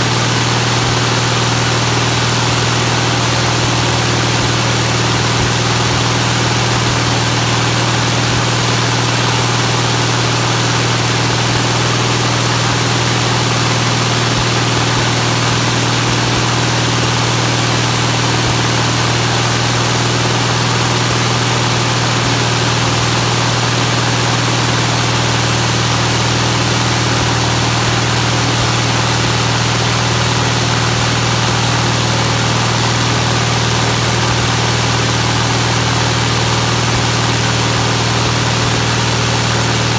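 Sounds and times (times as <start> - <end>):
aircraft engine running steadily: 0.0 - 39.9
propeller and air noise: 0.0 - 39.9.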